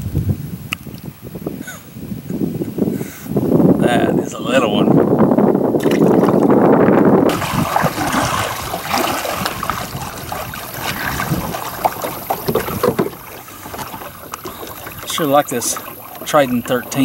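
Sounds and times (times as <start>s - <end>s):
paddle strokes in water: 5.8s - 17.0s
water drips: 7.3s - 17.0s.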